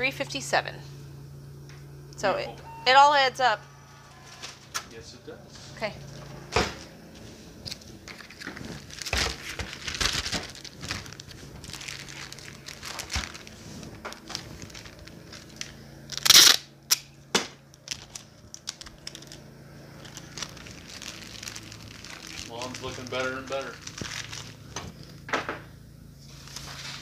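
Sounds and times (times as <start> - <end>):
plastic packaging crinkling: 7.7 - 16.6, 17.7 - 25.2.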